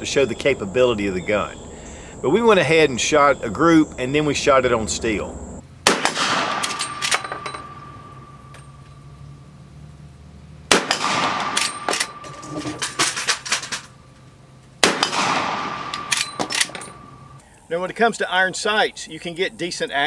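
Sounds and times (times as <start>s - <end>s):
rifle shots: 5.8s - 8.8s, 10.7s - 13.8s, 14.8s - 17.4s
steel target ringing: 5.8s - 9.2s, 10.7s - 13.2s, 14.8s - 17.4s.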